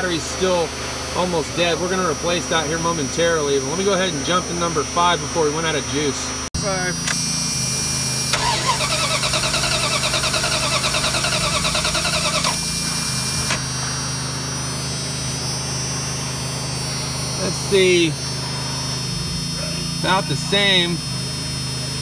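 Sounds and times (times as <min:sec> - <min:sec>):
starter motor cranking engine: 0:08.2 - 0:13.7
steady hum: 0:12.5 - 0:22.0.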